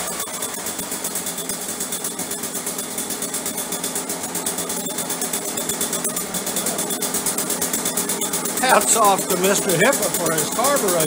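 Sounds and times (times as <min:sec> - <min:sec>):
leaf blower engine running: 0:00.0 - 0:11.0.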